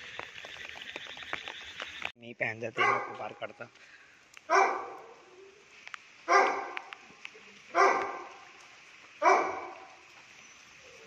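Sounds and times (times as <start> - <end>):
dog barking: 2.8 - 3.3, 4.5 - 5.3, 6.3 - 6.9, 7.7 - 8.3, 9.2 - 10.0.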